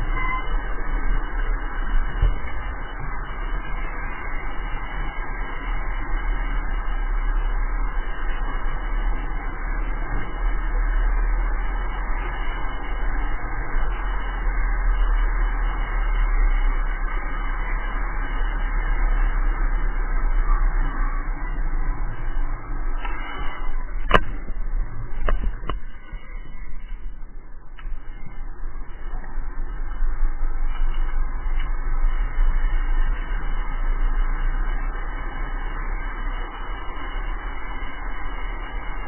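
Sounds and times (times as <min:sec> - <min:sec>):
wind buffeting microphone: 0:00.0 - 0:05.8, 0:22.0 - 0:33.6.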